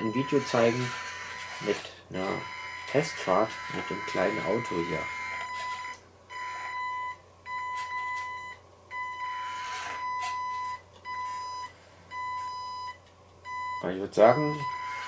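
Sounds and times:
small motor whirring: 0.0s - 6.8s, 9.2s - 10.4s, 14.5s - 15.0s
electronic warning beeper: 0.0s - 15.0s.

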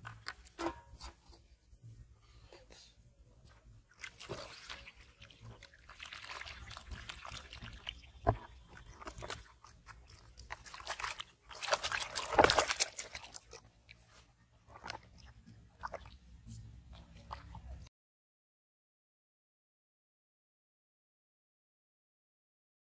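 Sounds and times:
fish splashing in a tub: 3.9s - 17.9s.

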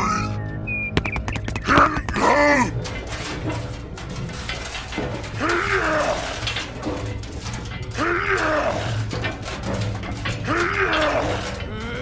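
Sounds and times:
ratchet-like mechanical rattle: 2.7s - 12.0s
gruff voice grunting with effort: 10.5s - 12.0s.

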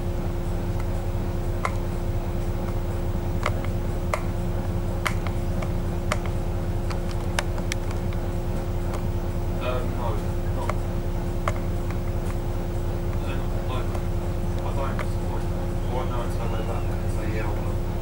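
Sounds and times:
bus engine idling: 0.0s - 18.0s
sharp clicks: 2.5s - 9.2s.

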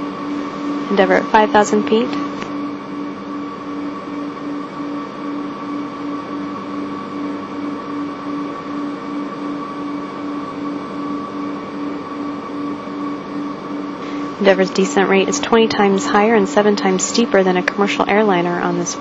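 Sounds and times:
low pulsing tone: 0.0s - 3.2s, 12.9s - 19.0s
electronic humming tones: 0.0s - 19.0s.

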